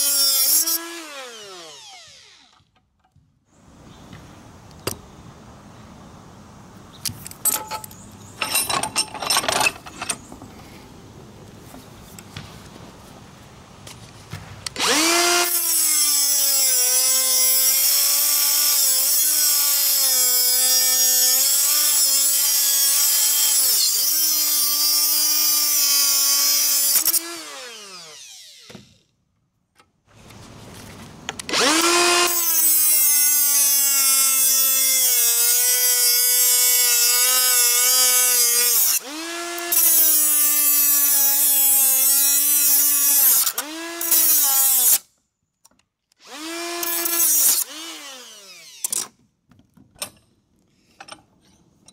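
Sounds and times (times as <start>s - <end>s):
die grinder cutting metal: 0.0s - 2.5s, 14.8s - 28.8s, 31.5s - 45.0s, 46.2s - 49.1s.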